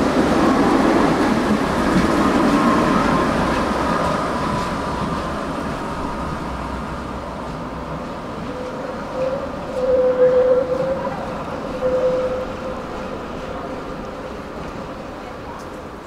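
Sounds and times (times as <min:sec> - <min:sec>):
tram rumbling on rails: 0:00.0 - 0:16.0.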